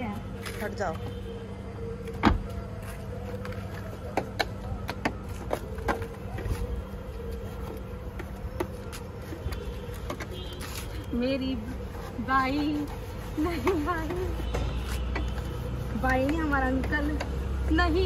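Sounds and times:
hand rubbing soapy glass: 5.2s - 18.0s.

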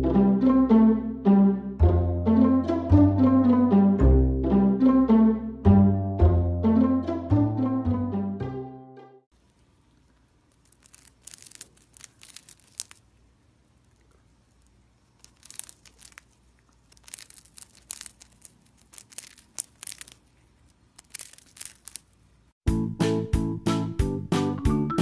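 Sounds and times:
music: 0.0s - 9.3s, 22.6s - 25.0s
hamster crunching biscuit: 9.4s - 22.4s.

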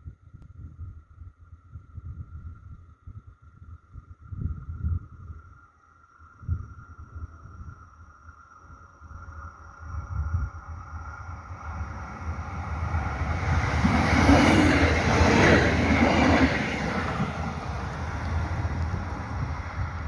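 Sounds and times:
diesel train engine passing: 9.7s - 20.0s
train wheels on rails: 11.0s - 20.0s.

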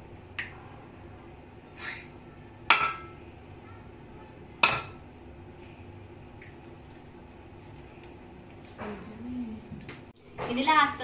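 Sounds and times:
egg knocking on metal pot: 2.7s - 3.2s, 4.6s - 5.0s.

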